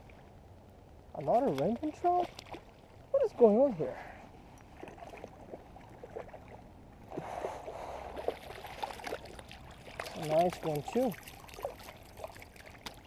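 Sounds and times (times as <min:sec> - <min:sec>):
fish splashing in water: 0:07.3 - 0:13.0.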